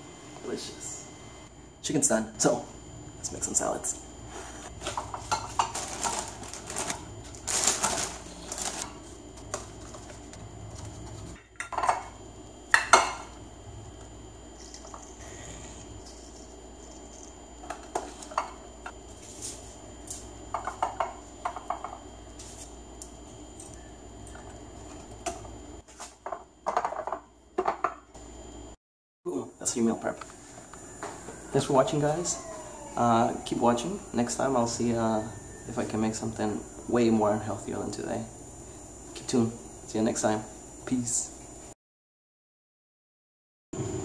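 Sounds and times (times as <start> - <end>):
glass containers clinking on counter: 11.6 - 12.1.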